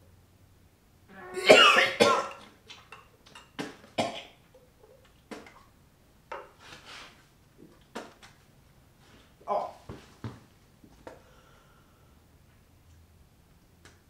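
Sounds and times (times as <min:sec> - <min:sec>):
man gagging and coughing: 0:01.3 - 0:02.3.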